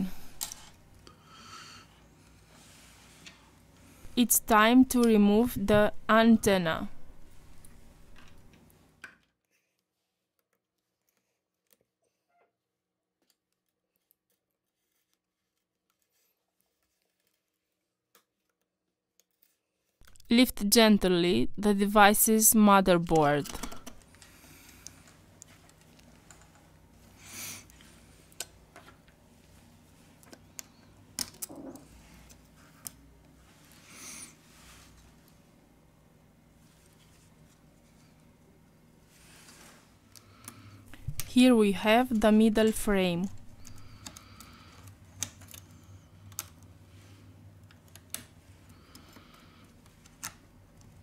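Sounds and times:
low steady hum: 0:00.0 - 0:08.9, 0:20.0 - 0:51.0
soft scrape: 0:39.1 - 0:40.0
small plastic clicks and ticks: 0:43.6 - 0:46.7.

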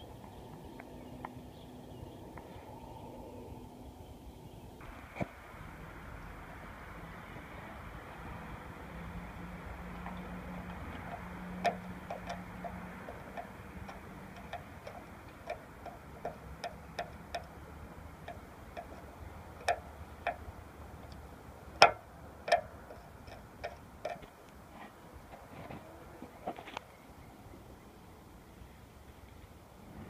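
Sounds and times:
light clicks and taps: 0:09.9 - 0:17.6, 0:18.2 - 0:24.6.

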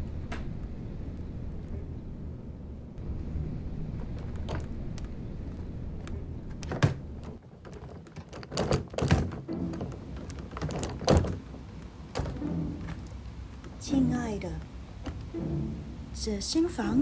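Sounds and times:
suitcase wheels rumbling on hard floor: 0:07.3 - 0:13.9.

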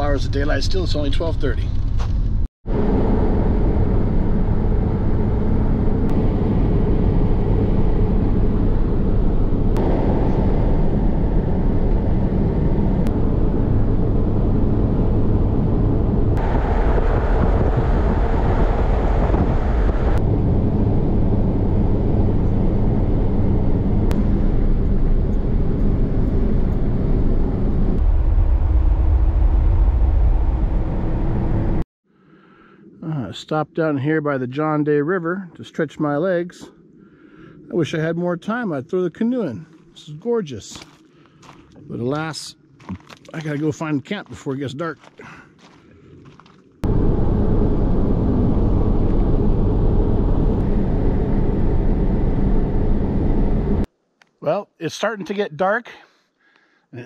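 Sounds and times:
engine and road noise in cab: 0:01.6 - 0:28.2, 0:30.6 - 0:31.9, 0:46.8 - 0:53.9.

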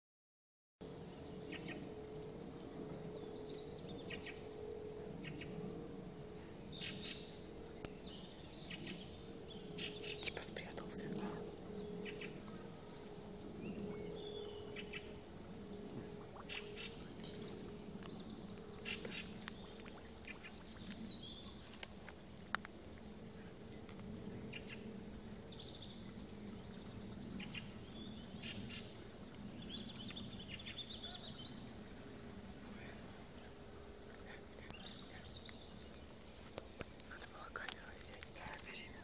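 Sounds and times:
faint steady hum: 0:00.8 - 0:39.0
birds chirping: 0:02.6 - 0:39.0.

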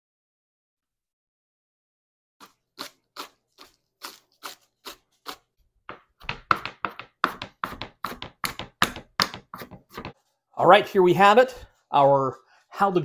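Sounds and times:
knife chopping on a cutting board: 0:05.9 - 0:10.2.

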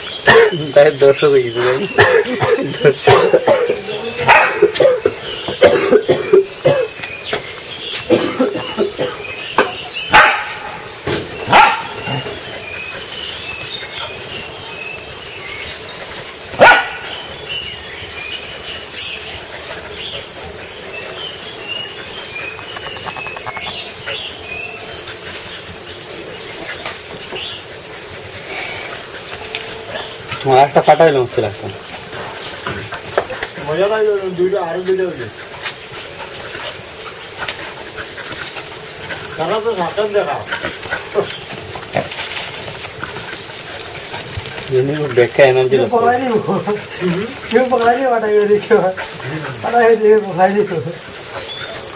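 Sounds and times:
dog barking: 0:03.1 - 0:05.0, 0:10.1 - 0:10.8, 0:11.5 - 0:12.1, 0:16.6 - 0:17.2.

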